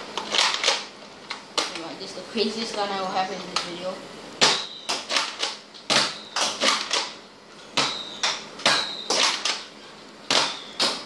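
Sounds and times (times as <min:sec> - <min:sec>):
darts whistling in flight: 0:07.8 - 0:09.5, 0:10.4 - 0:11.0.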